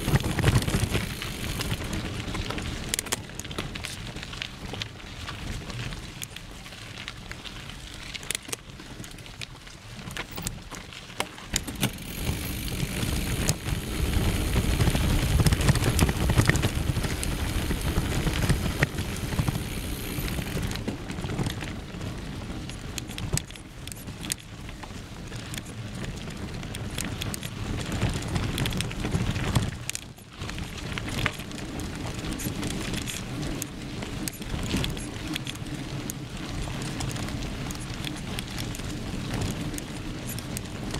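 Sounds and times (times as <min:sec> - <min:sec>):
bike chain and frame rattling: 0:00.0 - 0:40.9
bike tyres crunching over gravel: 0:00.0 - 0:40.9.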